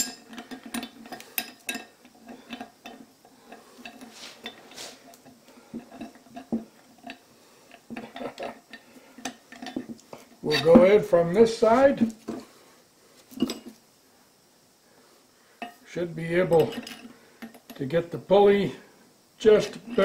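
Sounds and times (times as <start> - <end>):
metal scraping: 19.6 - 20.0.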